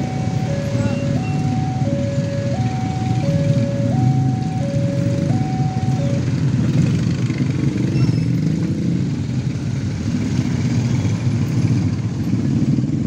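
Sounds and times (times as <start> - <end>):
two-tone level-crossing warning signal: 0.0 - 6.4
motorcycle engines idling: 0.0 - 13.0.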